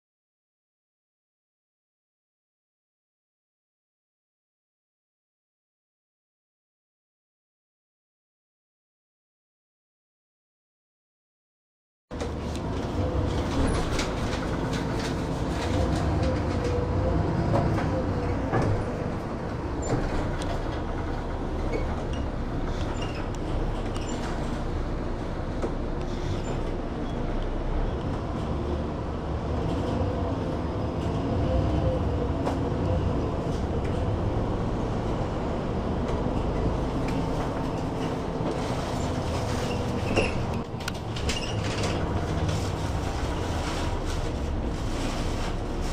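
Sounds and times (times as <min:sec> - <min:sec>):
bus engine drone: 0:12.1 - 0:45.9
road noise: 0:12.1 - 0:45.9.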